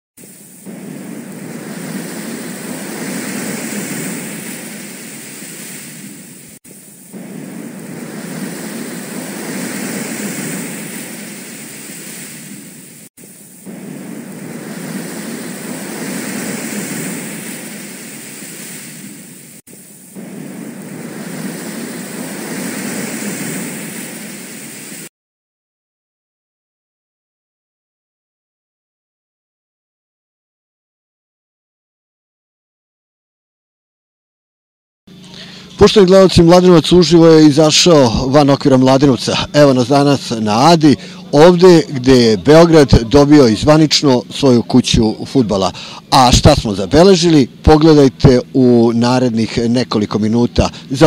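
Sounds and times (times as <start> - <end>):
rushing surf-like noise: 0.2 - 25.1, 35.1 - 51.0.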